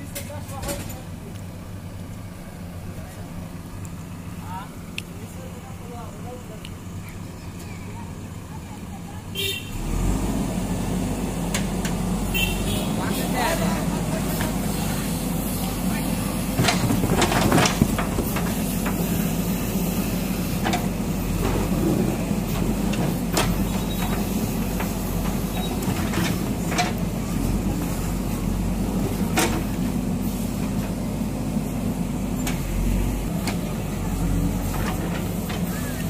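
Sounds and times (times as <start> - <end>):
diesel engine running: 0.0 - 36.0
masonry cracking and breaking: 16.6 - 18.5.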